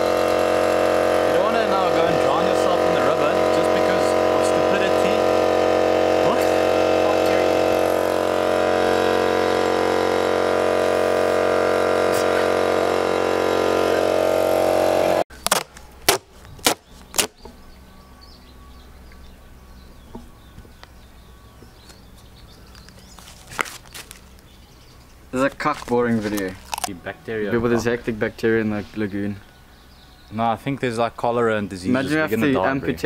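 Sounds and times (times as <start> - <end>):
air pump motor humming: 0.0 - 17.6
duct tape ripping off roll: 15.3 - 17.4, 23.1 - 24.4, 25.5 - 26.9.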